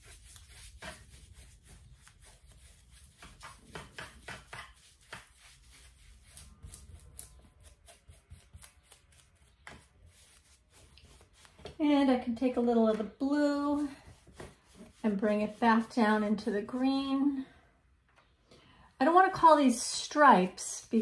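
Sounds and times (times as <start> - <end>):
paintbrush swishing on canvas: 0.0 - 11.8, 13.5 - 16.8.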